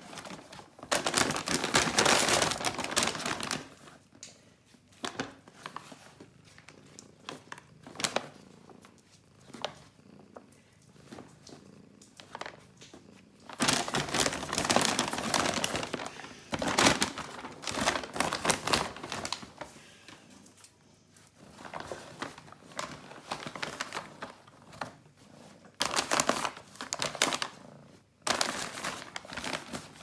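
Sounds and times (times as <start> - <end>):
paper bag crinkling and rustling: 0.0 - 4.0, 5.0 - 8.8, 13.5 - 19.8, 21.4 - 27.6, 28.2 - 30.0.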